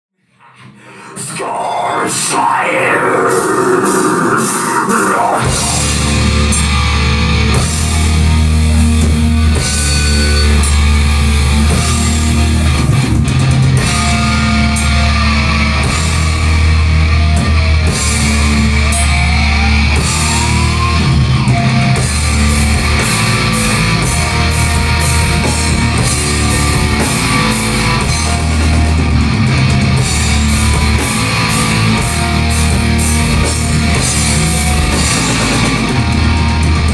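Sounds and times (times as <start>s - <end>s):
metal band playing: 0.7s - 36.9s.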